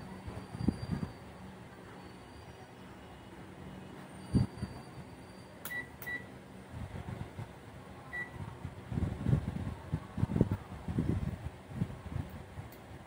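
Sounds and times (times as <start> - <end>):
multimeter beeping: 5.6 - 6.3, 8.1 - 8.4.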